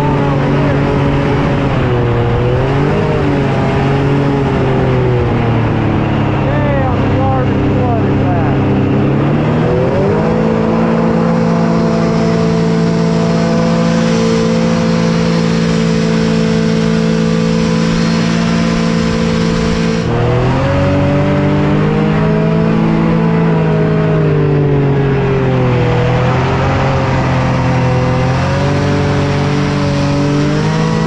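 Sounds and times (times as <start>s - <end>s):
hovercraft engine and fan: 0.0s - 31.0s.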